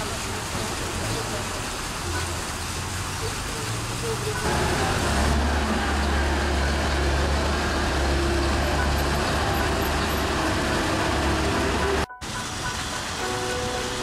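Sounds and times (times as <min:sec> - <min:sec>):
street traffic rumble: 0:00.0 - 0:14.0.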